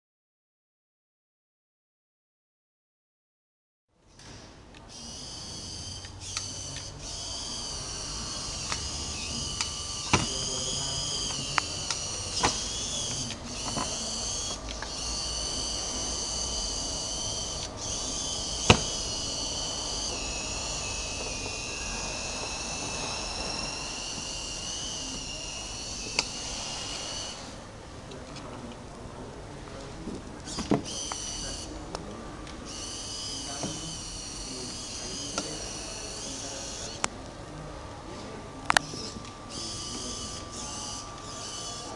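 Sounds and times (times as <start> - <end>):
servo motor gear whine: 4.9 - 28.6, 30.4 - 32.0, 32.6 - 37.1, 38.0 - 41.9
sharp clicks: 8.6 - 15.1.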